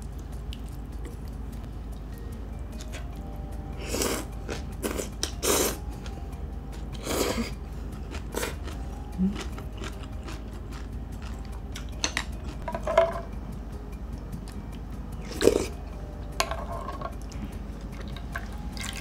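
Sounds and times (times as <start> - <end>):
chewing: 0.0 - 1.6, 3.9 - 12.6, 15.2 - 15.8.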